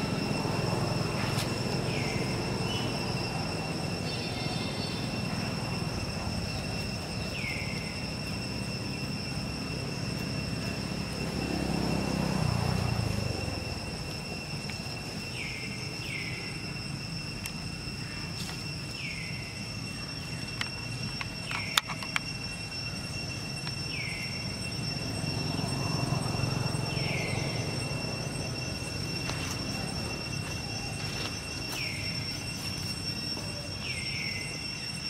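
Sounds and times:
high-pitched insect drone: 0.0s - 35.0s.

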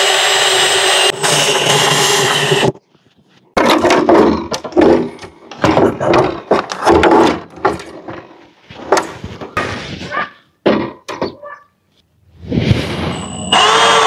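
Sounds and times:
knocks bumps and scrapes of an enclosure: 3.6s - 11.4s.

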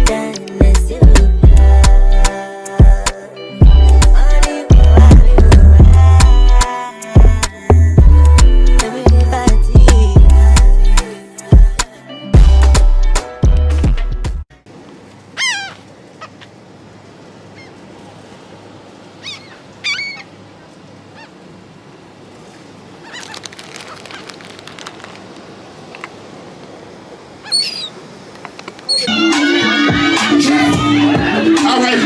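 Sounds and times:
wind: 0.0s - 13.4s, 14.5s - 32.0s
water noise: 14.7s - 30.4s
gulls calling: 15.3s - 16.7s, 17.4s - 18.4s, 19.0s - 25.2s, 27.2s - 31.9s.

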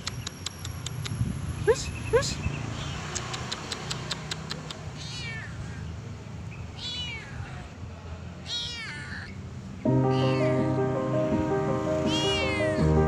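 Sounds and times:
kitten meowing: 4.9s - 5.8s, 6.8s - 7.6s, 8.4s - 9.4s, 10.1s - 10.7s, 12.0s - 12.9s
background music: 9.9s - 13.0s.

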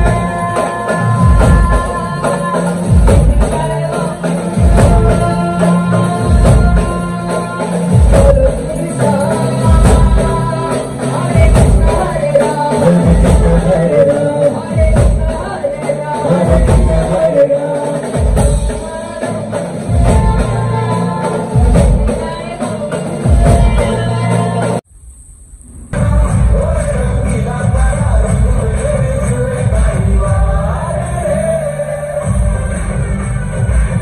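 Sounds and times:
live band through loudspeakers: 0.0s - 24.8s, 25.6s - 34.0s
person singing: 0.0s - 24.8s, 26.0s - 34.0s
deep bass hits: 24.9s - 28.6s.

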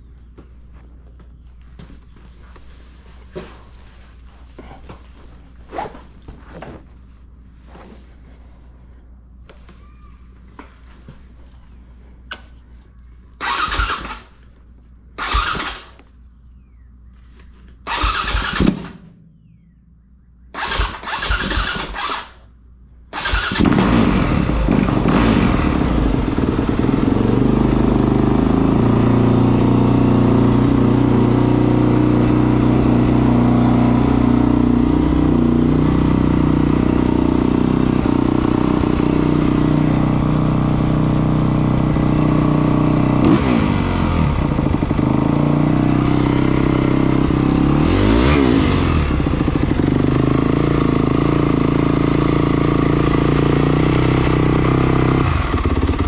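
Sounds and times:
motorcycle engine cranking: 13.4s - 14.4s, 15.2s - 16.0s, 17.8s - 19.1s, 20.6s - 22.4s, 23.1s - 25.2s
motorcycle engine idling: 17.8s - 47.8s, 48.8s - 56.0s.

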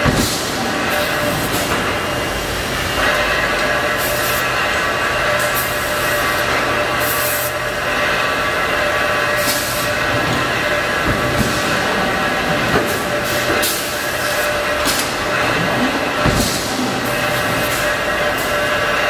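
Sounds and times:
machinery drone: 0.0s - 19.0s.

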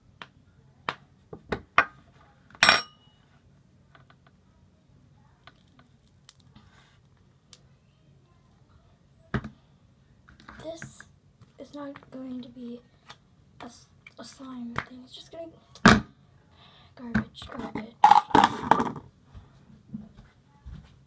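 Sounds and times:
ringing metallic clink: 2.6s - 3.2s.

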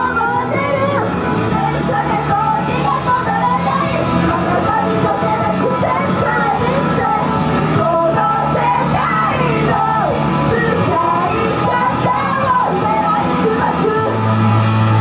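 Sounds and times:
women singing and shouting: 0.0s - 14.5s
loud rock music: 0.0s - 15.0s.

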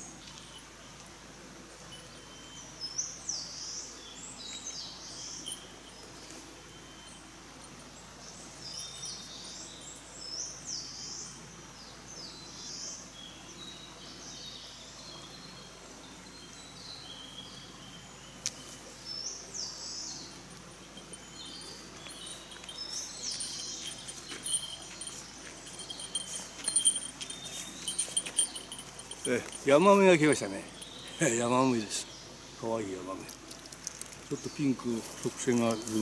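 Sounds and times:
songbirds singing: 0.0s - 36.0s
footsteps and gear clicking: 20.3s - 30.0s.

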